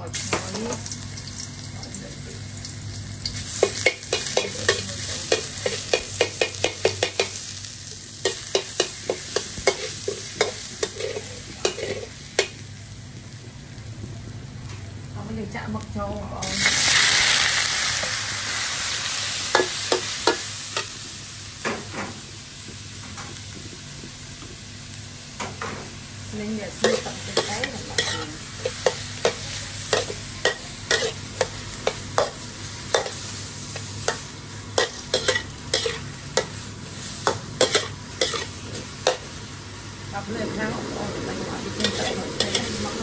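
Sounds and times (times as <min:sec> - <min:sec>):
squid sizzling in a wok: 0:00.0 - 0:43.0
metal spatula scraping a wok: 0:26.8 - 0:32.3, 0:34.8 - 0:39.2, 0:41.4 - 0:43.0.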